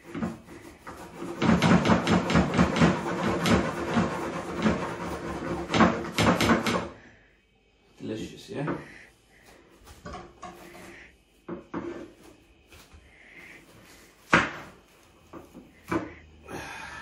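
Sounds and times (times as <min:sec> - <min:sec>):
knife scraping against plate: 0:10.4 - 0:11.1.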